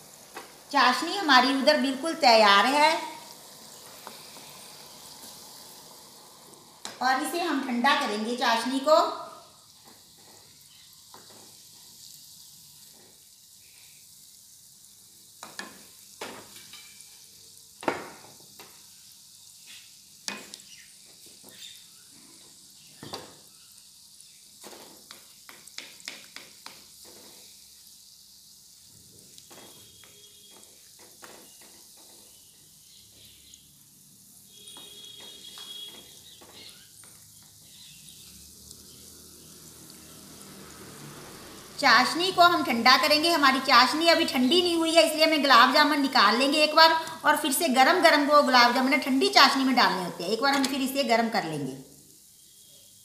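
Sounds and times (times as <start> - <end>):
oil sizzling: 0.0 - 53.0
spatula tapping pan: 15.4 - 17.0, 24.6 - 27.3.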